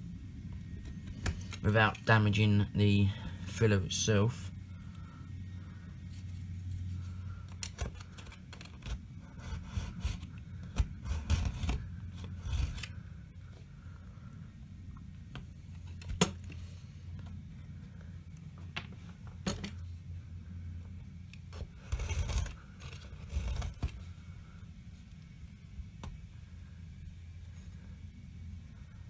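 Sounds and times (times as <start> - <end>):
knife scraping rasps: 7.6 - 12.9, 21.5 - 23.9.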